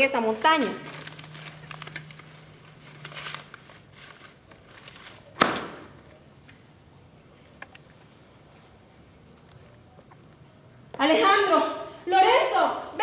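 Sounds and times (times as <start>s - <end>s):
cloth rustling: 0.0s - 5.3s.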